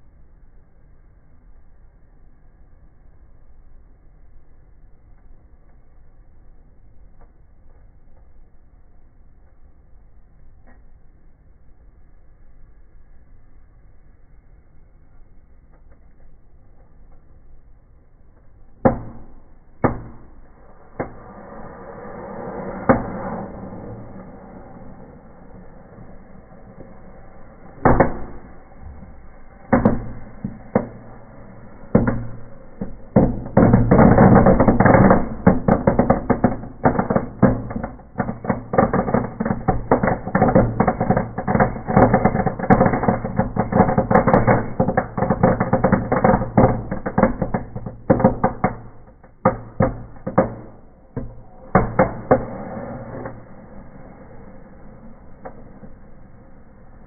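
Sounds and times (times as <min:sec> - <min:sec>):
low rush of fire: 0:00.0 - 0:57.0
firecrackers banging: 0:18.6 - 0:57.0.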